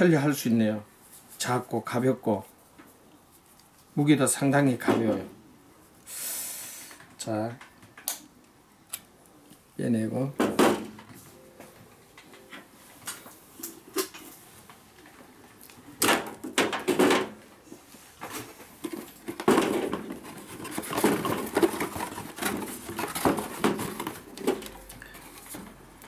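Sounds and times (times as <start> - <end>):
cardboard box being handled: 18.8 - 25.8.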